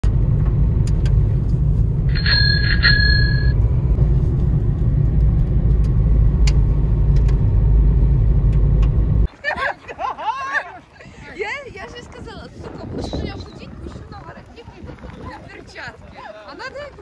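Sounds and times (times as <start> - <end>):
tyres and engine rumble: 0.0 - 17.0
bell-like chime: 2.1 - 3.6.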